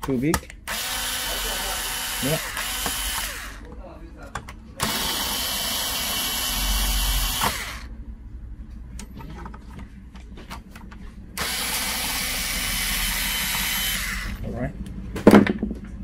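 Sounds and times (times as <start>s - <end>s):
power screwdriver running: 0.7s - 3.6s, 4.8s - 7.9s, 11.4s - 14.4s.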